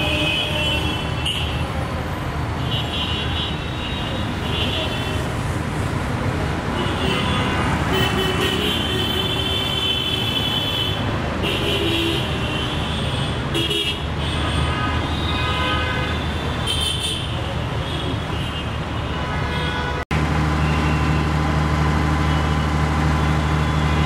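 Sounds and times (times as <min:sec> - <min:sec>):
vehicle horns honking: 0:00.0 - 0:01.7, 0:06.7 - 0:21.3
road traffic rumbling: 0:00.0 - 0:24.0.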